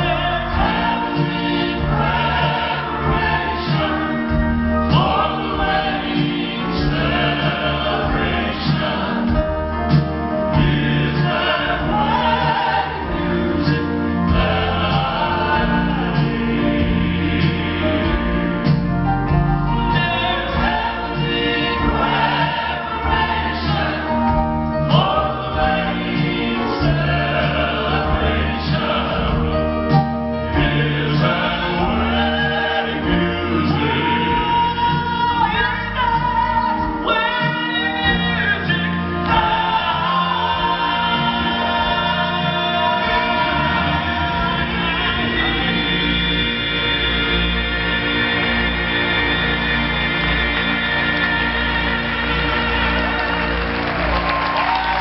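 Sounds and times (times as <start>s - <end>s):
live band playing: 0.0s - 55.0s
male vocal groups singing in harmony: 0.0s - 55.0s
upright bass: 0.0s - 55.0s.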